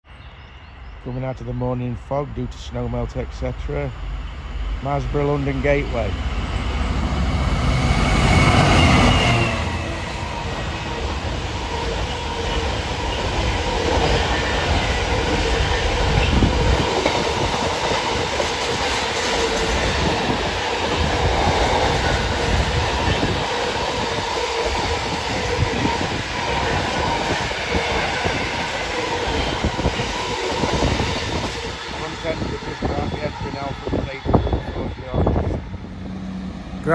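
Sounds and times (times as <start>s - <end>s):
diesel locomotive passing: 0.5s - 36.9s
train wheels clattering on rails: 7.7s - 34.6s.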